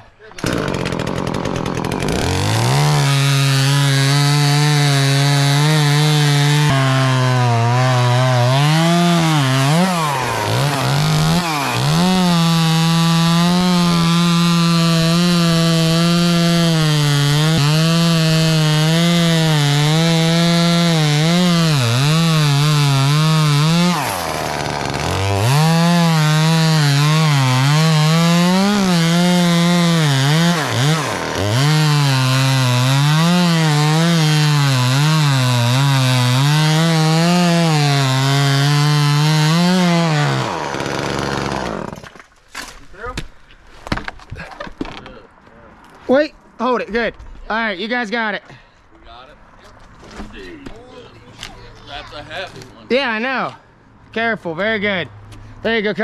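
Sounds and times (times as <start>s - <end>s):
chainsaw cutting wood: 0.4s - 42.8s.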